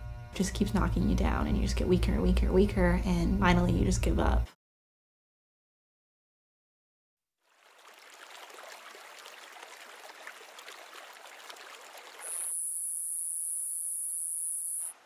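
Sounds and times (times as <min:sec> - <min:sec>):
water splashing into pool: 0:07.4 - 0:12.7.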